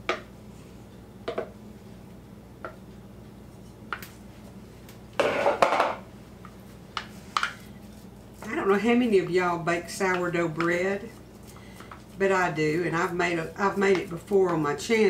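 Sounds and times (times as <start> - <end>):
low steady hum: 0.0 - 15.0
spatula scraping a bowl: 7.3 - 15.0.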